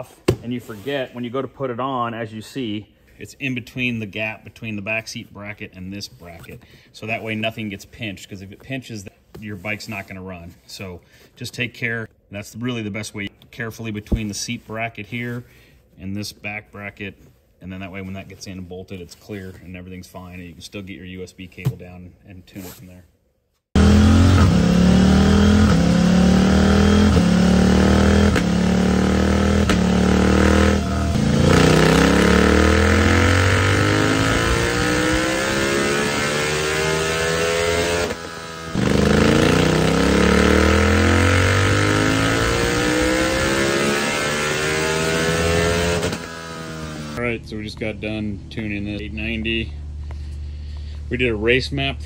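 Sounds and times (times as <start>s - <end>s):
motorcycle engine revving on dyno: 23.8s - 47.2s.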